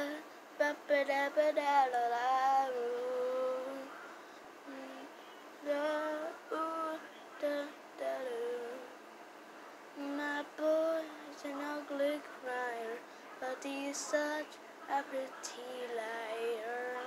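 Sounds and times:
person singing unaccompanied: 0.0s - 3.9s, 4.6s - 9.0s, 10.0s - 17.0s.

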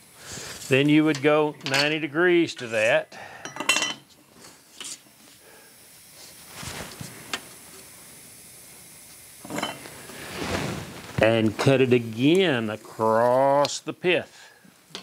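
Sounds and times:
metal tools scraping on wood: 9.4s - 9.8s.

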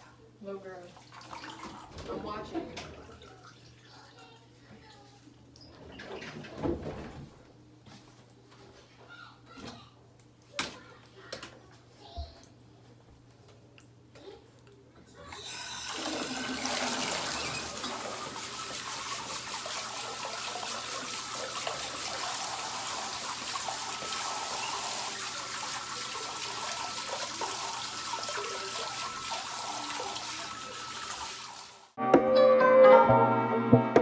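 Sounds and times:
water running from tap: 0.5s - 5.1s, 15.2s - 32.0s
music: 32.0s - 34.0s.

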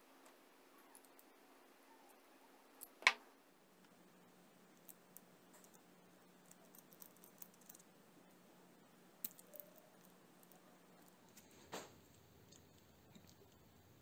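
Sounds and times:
small metal clicks: 6.4s - 7.9s.

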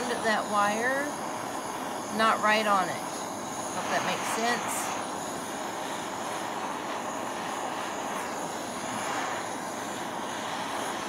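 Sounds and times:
gas torch flame burning: 0.0s - 11.0s.

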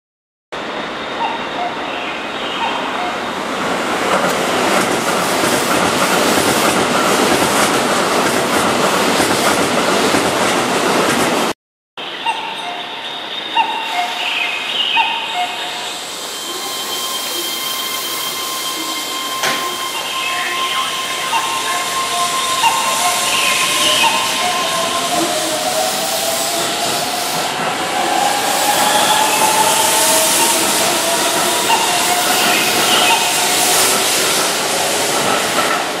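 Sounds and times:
electric train running noise: 15.0s - 36.0s.

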